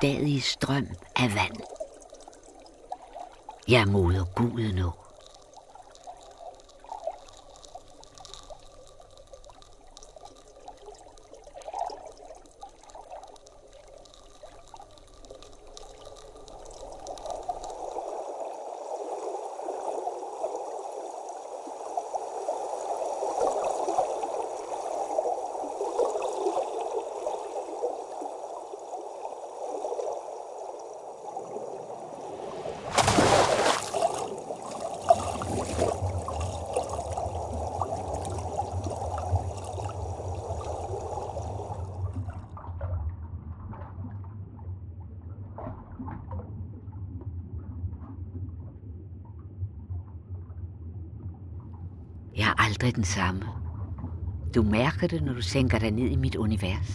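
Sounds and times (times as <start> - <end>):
trickling bubbling water: 0.0 - 42.9
bird splashing into water: 18.8 - 42.0.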